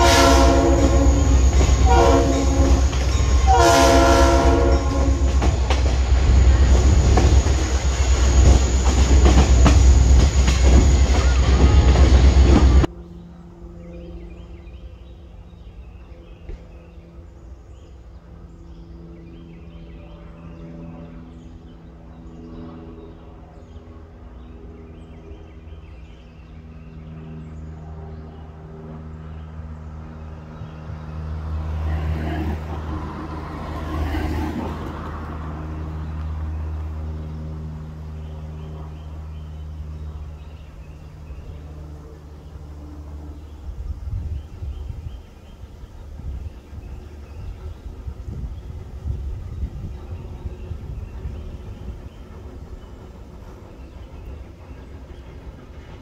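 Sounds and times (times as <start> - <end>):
rushing noise: 0.0 - 12.9
birds chirping: 0.0 - 56.0
engine droning: 0.0 - 56.0.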